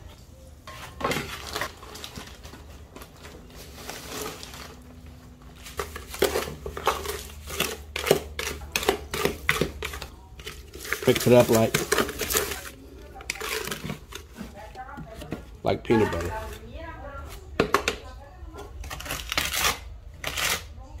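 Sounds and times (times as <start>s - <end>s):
plastic bag rustling: 0.7s - 8.2s, 9.8s - 16.8s
scraping against plastic bucket: 5.5s - 16.7s.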